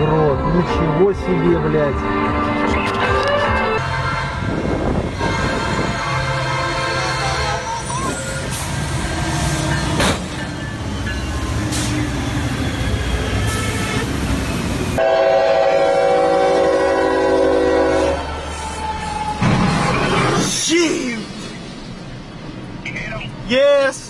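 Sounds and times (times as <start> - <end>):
freight train rumbling: 0.0 - 24.0
locomotive horn chord: 0.6 - 7.9, 15.0 - 18.3.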